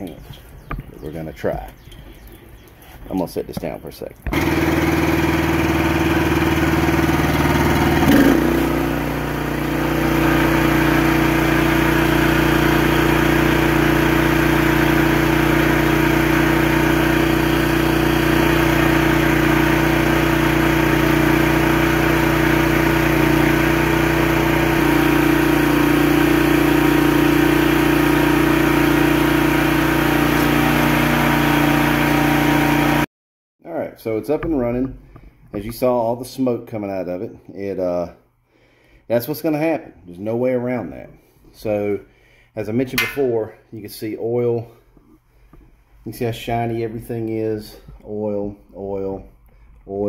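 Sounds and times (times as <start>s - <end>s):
pressure washer engine running: 4.3s - 33.1s.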